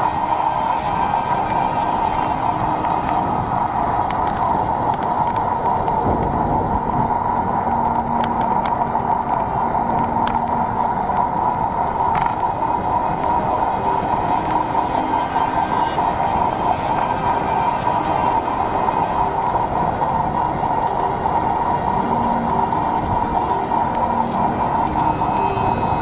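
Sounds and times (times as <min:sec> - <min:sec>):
wind and road noise from bicycle: 0:00.0 - 0:26.0
faint clicks: 0:02.2 - 0:13.2.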